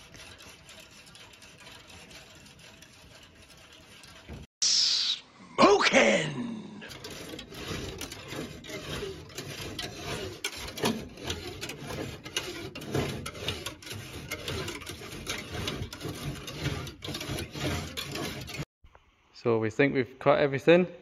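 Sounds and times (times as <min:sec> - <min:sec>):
cutting tool rasping through adhesive: 0:00.0 - 0:04.6, 0:06.9 - 0:18.7.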